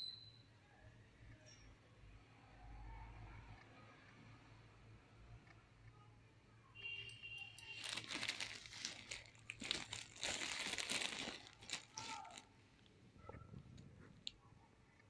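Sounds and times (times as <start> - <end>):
plastic bags crinkling: 7.4 - 12.5.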